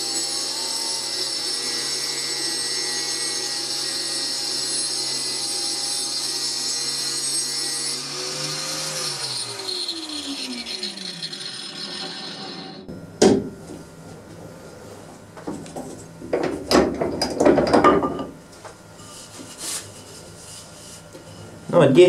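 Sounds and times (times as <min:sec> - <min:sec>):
electric motor running and spinning down: 0:06.9 - 0:14.6.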